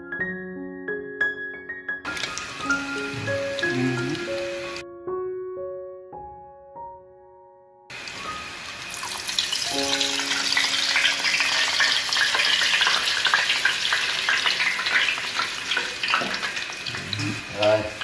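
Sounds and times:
background music: 0.0 - 13.3
hot oil crackling and sizzling: 2.1 - 4.8, 7.9 - 18.0.

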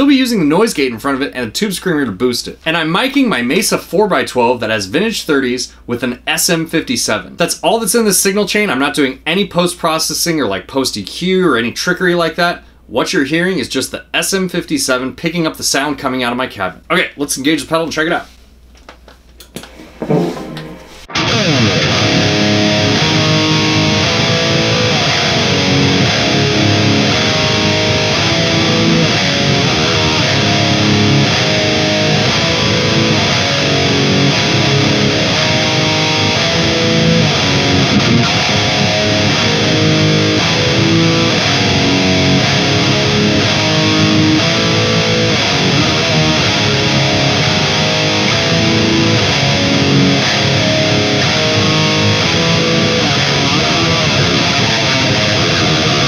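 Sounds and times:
distorted electric guitar riffs: 19.5 - 56.0.

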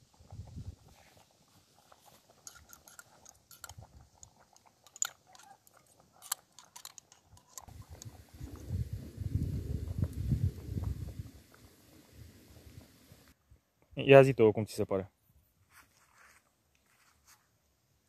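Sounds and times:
spoon scraping glass jar: 2.3 - 8.2
low rumbling noise: 7.7 - 13.3.

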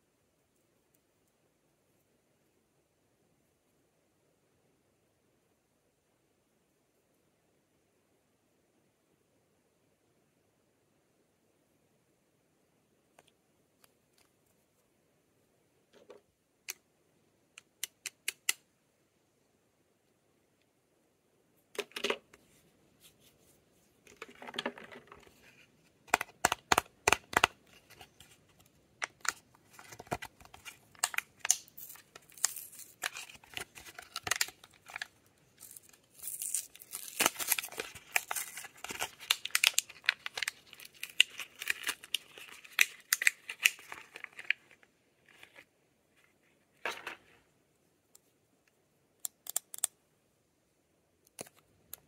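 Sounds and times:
packaging clicks and snaps: 26.1 - 28.0, 29.0 - 44.6
plastic and paper crinkling: 27.1 - 45.7.

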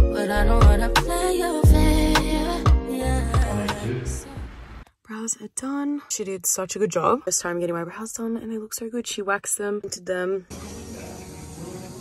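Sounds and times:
background music with steady beat: 0.0 - 4.8.

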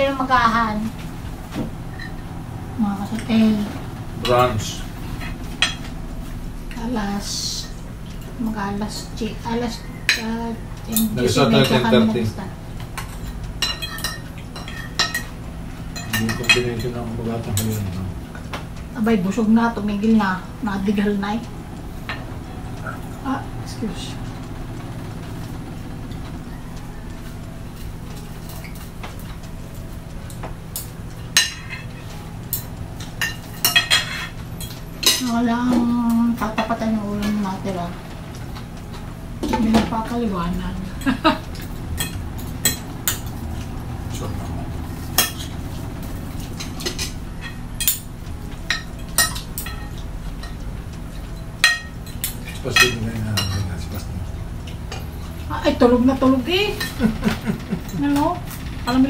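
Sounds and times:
steady low hum: 0.0 - 59.0
cutlery clinking on ceramic plates: 13.0 - 15.3, 16.0 - 18.0, 30.3 - 35.3, 51.6 - 54.1
cutlery clinking on plates: 30.3 - 35.2.

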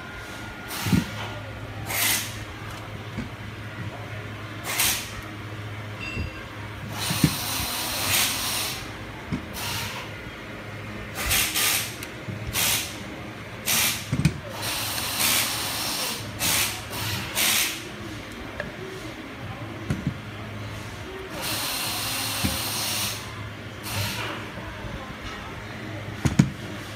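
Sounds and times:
steady low hum: 0.0 - 26.9
compressed gas hissing bursts: 1.9 - 2.4, 4.6 - 5.2, 6.9 - 8.9, 11.2 - 13.0, 13.6 - 17.9, 21.4 - 24.3.

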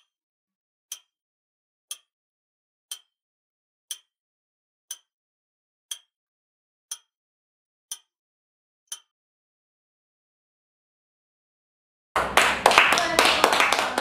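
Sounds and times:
clock ticks: 0.9 - 1.1, 1.9 - 2.1, 2.9 - 3.2, 3.9 - 4.1, 4.9 - 5.1, 5.9 - 6.1, 6.9 - 7.1, 7.9 - 8.2, 8.9 - 9.1.

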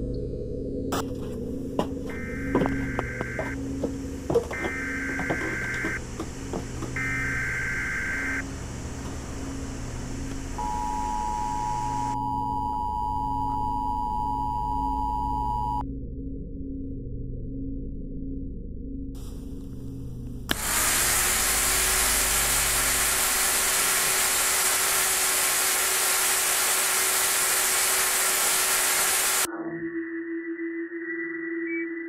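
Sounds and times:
low pulsing hum: 0.0 - 29.5
long steady tone: 2.0 - 15.8, 20.5 - 29.5
electronic clicks: 2.1 - 3.6
pulsed high beeps: 2.1 - 3.6.

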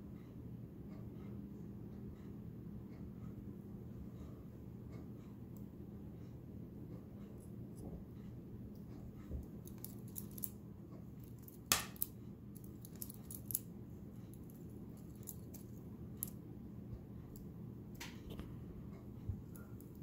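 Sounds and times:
butterfly knife clicking and clacking: 11.3 - 13.6.

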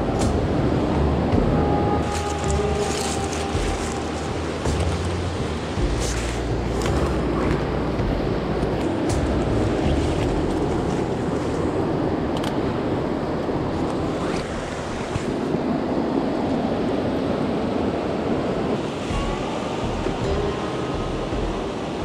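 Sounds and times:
river rapids rushing: 0.0 - 22.0
wind on microphone: 0.0 - 22.0
footsteps through brush: 2.0 - 7.5.

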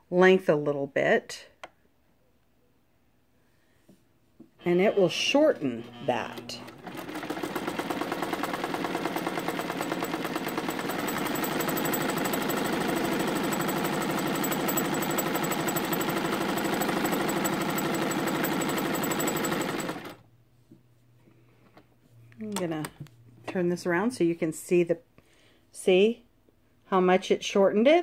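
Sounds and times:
sewing machine running: 4.6 - 20.2.

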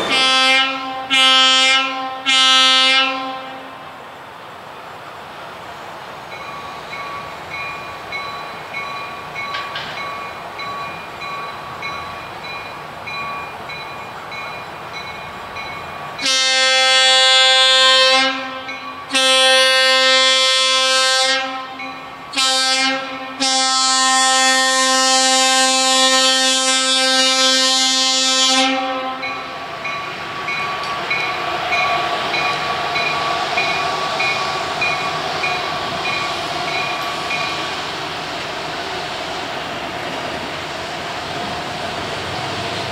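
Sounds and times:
train horn blasts: 0.0 - 3.9, 16.2 - 29.6
train rolling on rails: 0.0 - 42.9.

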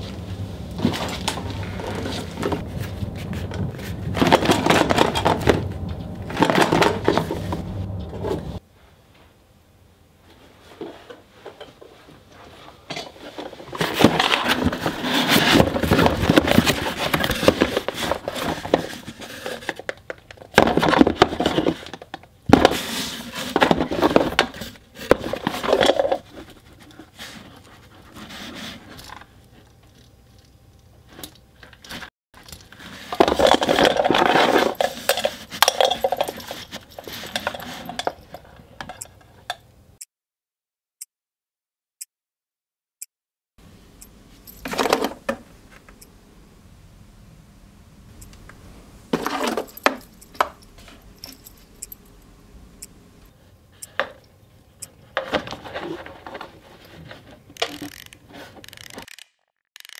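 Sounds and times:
objects rattling in cardboard box: 0.8 - 7.6, 12.9 - 29.2, 31.9 - 38.5, 49.1 - 50.9.

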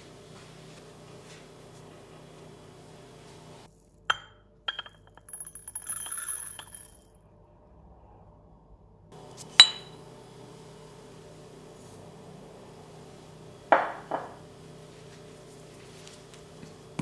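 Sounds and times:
ceramic bowl clink: 4.1 - 7.0, 9.6 - 10.0.

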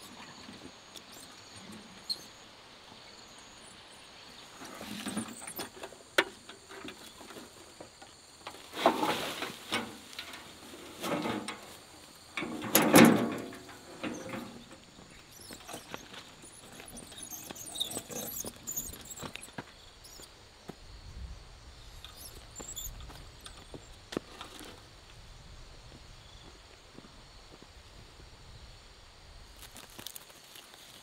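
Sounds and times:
leaves rustling and scraping: 4.3 - 19.6, 29.5 - 31.0
wheelbarrow knocking: 4.6 - 17.2.

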